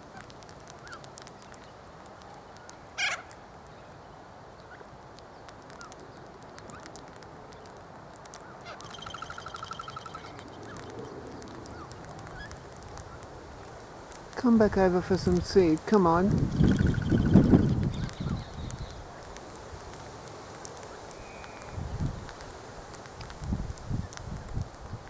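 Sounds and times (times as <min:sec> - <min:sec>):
fast rattling bird trill: 0:08.7 - 0:11.2, 0:16.5 - 0:19.0
faint bird chirps: 0:08.7 - 0:12.6, 0:16.5 - 0:19.0, 0:21.2 - 0:21.8.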